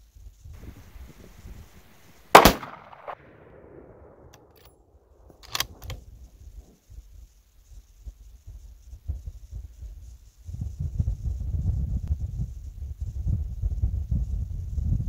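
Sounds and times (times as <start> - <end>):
rifle shot: 0.6 - 4.7
sharp clicks: 0.6 - 6.1.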